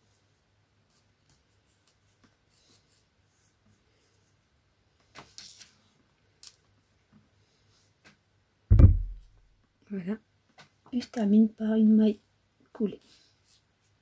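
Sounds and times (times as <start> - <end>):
low thump: 8.7 - 9.4.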